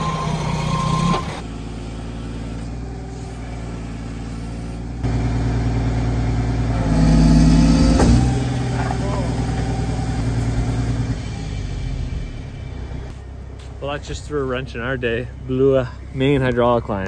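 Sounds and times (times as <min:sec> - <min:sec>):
reversing beeper: 0:00.0 - 0:01.4, 0:06.7 - 0:12.9
heavy diesel engine running: 0:00.0 - 0:17.0.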